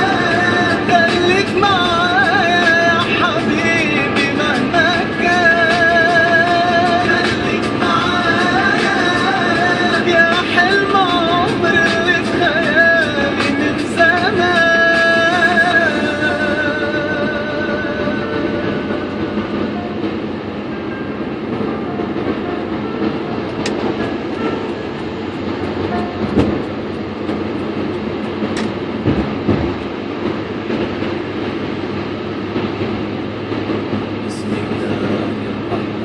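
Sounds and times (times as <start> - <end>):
road and tyre noise: 0.0 - 36.0
brief thumps: 25.8 - 27.5.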